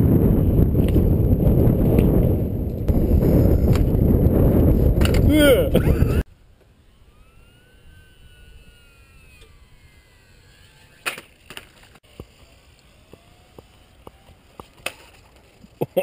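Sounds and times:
model plane motor whine: 6.0 - 15.8.

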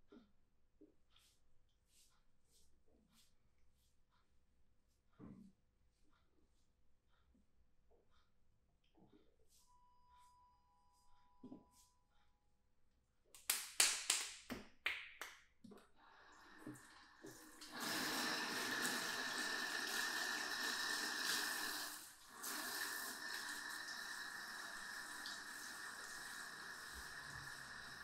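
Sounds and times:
tap water running: 16.2 - 28.0.

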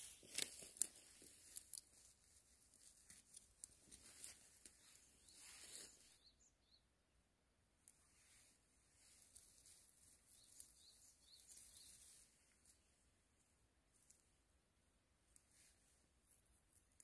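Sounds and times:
plant stems snapping and rustling: 0.0 - 5.9
faint bird chirps: 4.2 - 7.1, 9.0 - 12.8.

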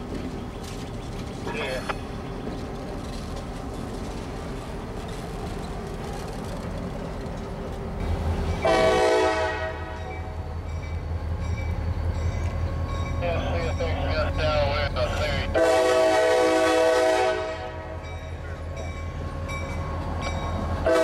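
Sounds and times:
diesel locomotive engine drone: 0.0 - 21.0
locomotive horn blast: 8.6 - 10.3, 15.0 - 18.1, 20.8 - 21.0.

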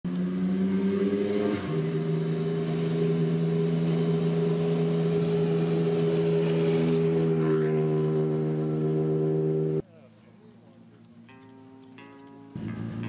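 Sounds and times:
rally car engine at high revs: 0.1 - 9.8.

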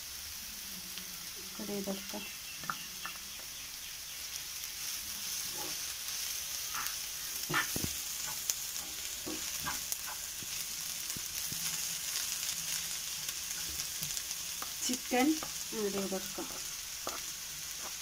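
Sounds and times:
vegetables sizzling in oil: 0.0 - 18.0
wooden spatula scraping pan: 5.3 - 5.9, 6.7 - 10.3, 15.4 - 18.0.

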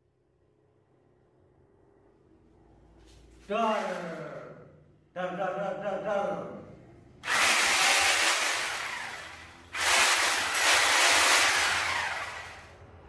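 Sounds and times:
handheld power tool running: 7.2 - 12.8.

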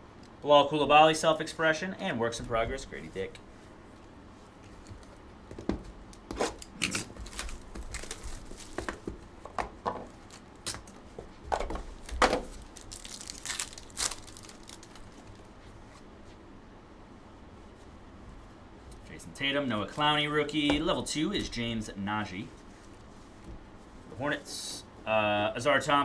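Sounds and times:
cardboard packaging rustling: 4.7 - 15.5.

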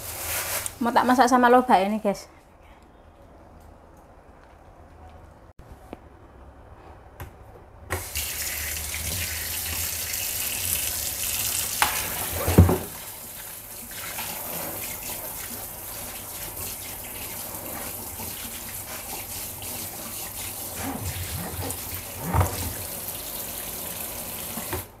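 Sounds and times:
tap water splashing onto meat: 11.6 - 13.0.

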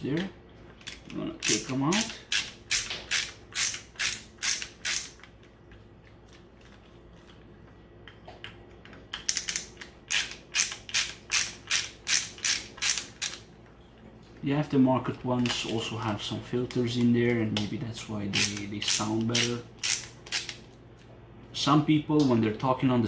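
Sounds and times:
screwdriver clicking: 0.8 - 5.3, 9.2 - 13.4, 18.3 - 20.6.

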